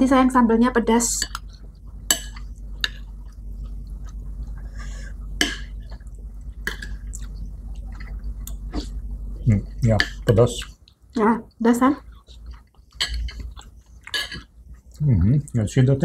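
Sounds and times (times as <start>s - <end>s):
soft chewing: 1.2s - 15.6s
cutlery clinking on plates: 13.0s - 13.4s, 14.1s - 14.5s.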